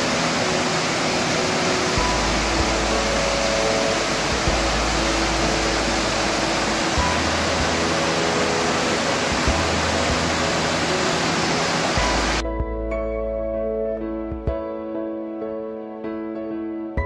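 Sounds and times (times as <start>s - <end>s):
waterfall rushing over rock: 0.0s - 12.4s
soft background music: 0.0s - 17.0s.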